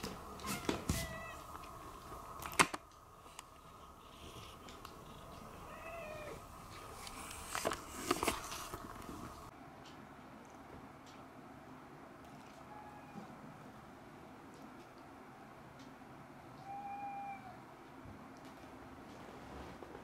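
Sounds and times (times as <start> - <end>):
cat meowing quietly: 0.4 - 1.5, 16.6 - 17.6.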